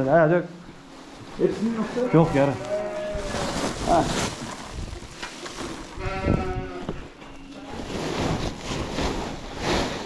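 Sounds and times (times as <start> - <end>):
sheep bleating: 1.8 - 3.5, 6.0 - 7.0.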